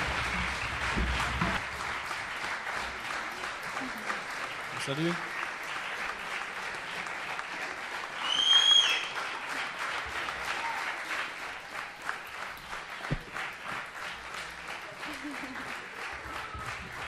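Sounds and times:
audience applauding: 0:00.0 - 0:17.0
shrill whistle from crowd: 0:08.2 - 0:09.2.

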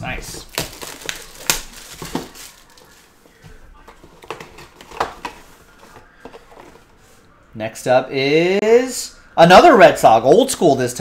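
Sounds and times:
plastic shrink wrap crinkling: 0:00.0 - 0:07.0.

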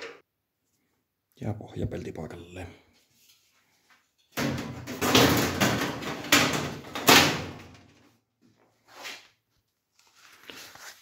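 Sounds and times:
loud metal clangs: 0:04.3 - 0:07.8.

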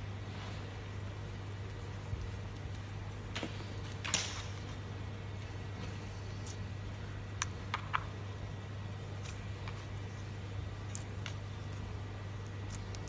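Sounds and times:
steady low hum: 0:00.0 - 0:13.0
crunchy crackles and pops: 0:09.0 - 0:13.0.

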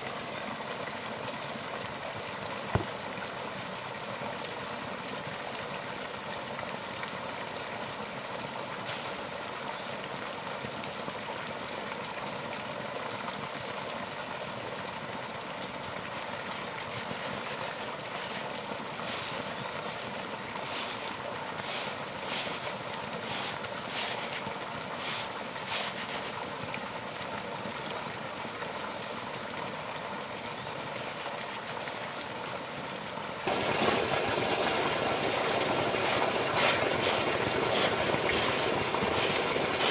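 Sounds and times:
rushing outdoor background noise: 0:17.0 - 0:26.4, 0:33.5 - 0:39.9
rice grains pouring: 0:17.5 - 0:26.4, 0:33.5 - 0:39.9.

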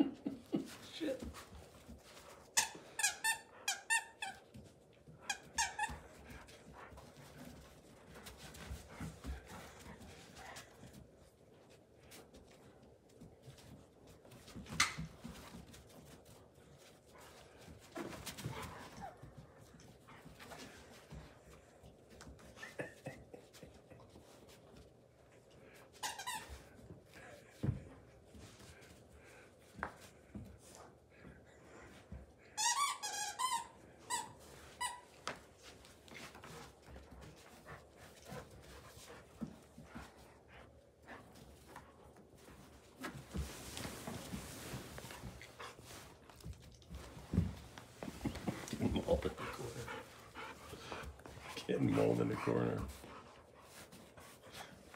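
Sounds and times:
paws scuffling on a rug: 0:00.5 - 0:22.8, 0:23.4 - 0:54.9.

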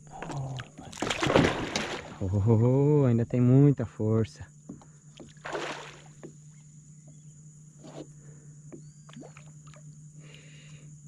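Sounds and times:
fish splashing at surface: 0:01.0 - 0:02.2, 0:05.4 - 0:06.1.

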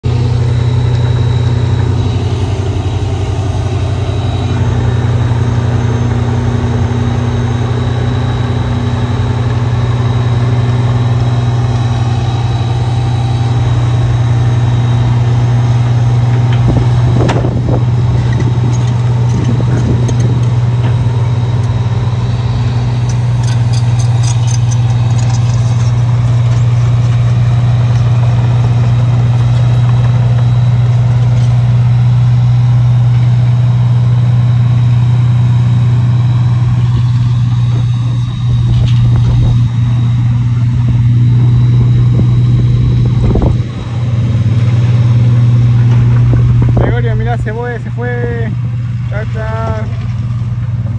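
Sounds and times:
wood chipper engine humming: 0:00.0 - 0:50.9
light clattering: 0:22.9 - 0:31.6.

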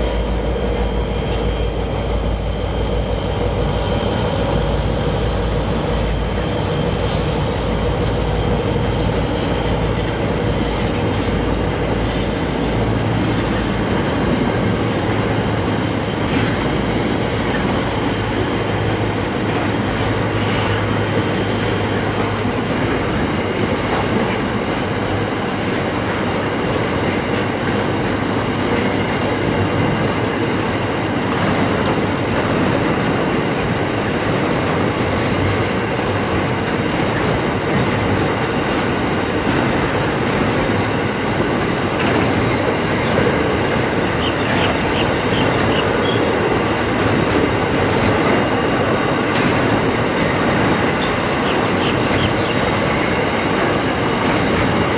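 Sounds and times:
train wheels on rails: 0:00.0 - 0:54.9.

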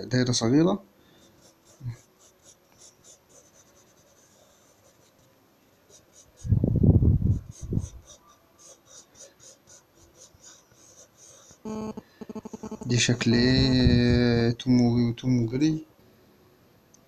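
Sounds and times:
pencil sketching on paper: 0:01.2 - 0:05.3, 0:05.9 - 0:06.6, 0:07.3 - 0:11.7.

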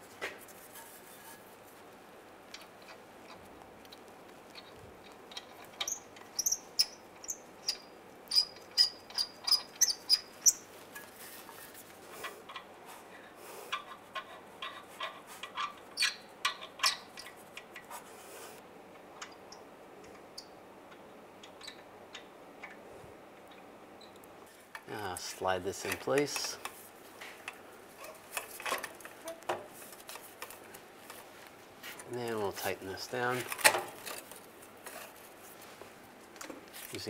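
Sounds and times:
metal nuts clicking and tapping: 0:02.5 - 0:11.1, 0:13.7 - 0:17.8
short high squeaks: 0:05.8 - 0:10.7.

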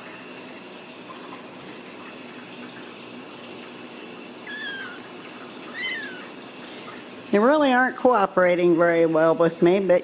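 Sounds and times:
kitten mewing: 0:04.4 - 0:06.5.

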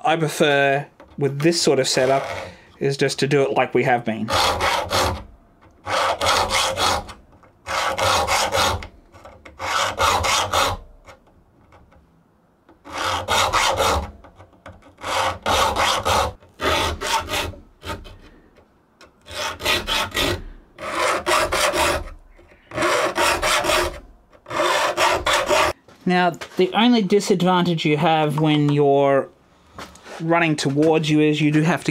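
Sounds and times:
file rasping on saw teeth: 0:04.3 - 0:10.8, 0:12.8 - 0:14.2, 0:14.8 - 0:18.2, 0:19.2 - 0:25.8.

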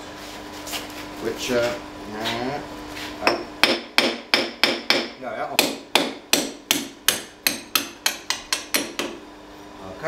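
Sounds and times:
hammer striking steel: 0:03.2 - 0:09.2.

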